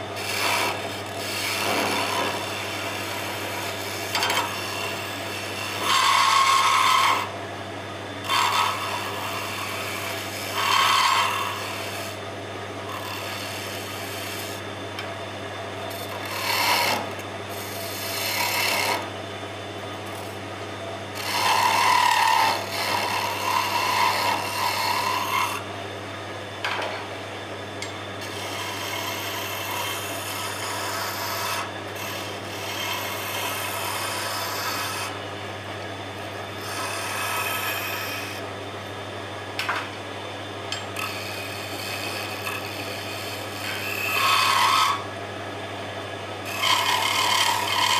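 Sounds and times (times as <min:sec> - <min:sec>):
turning tool scraping wood: 0:00.0 - 0:07.4, 0:08.2 - 0:12.2, 0:12.9 - 0:14.7, 0:15.9 - 0:19.1, 0:21.2 - 0:25.6, 0:28.2 - 0:35.2, 0:36.3 - 0:38.4, 0:41.0 - 0:45.1, 0:46.4 - 0:47.9
wood lathe humming: 0:00.0 - 0:07.4, 0:08.2 - 0:19.1, 0:21.1 - 0:25.7, 0:27.8 - 0:38.5, 0:40.7 - 0:45.2, 0:46.4 - 0:47.9.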